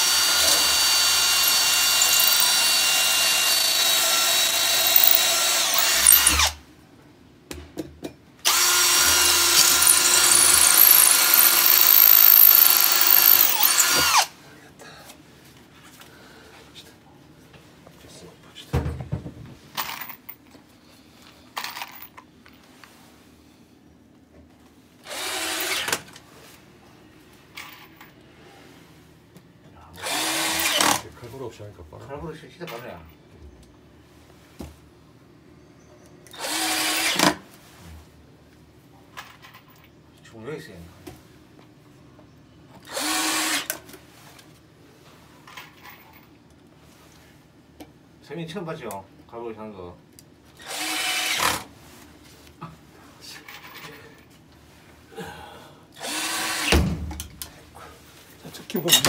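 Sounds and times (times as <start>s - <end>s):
cordless drill running: 0.0s - 6.6s, 8.4s - 14.3s, 25.0s - 25.9s, 30.0s - 31.0s, 36.4s - 37.3s, 42.9s - 43.7s, 50.6s - 51.6s, 56.0s - 56.7s
box of screws rattling: 1.4s - 2.8s, 4.7s - 6.5s, 9.6s - 13.9s.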